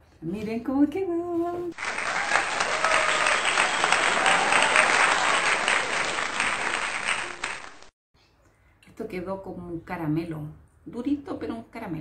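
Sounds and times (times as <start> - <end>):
crowd applause: 1.8 - 7.9.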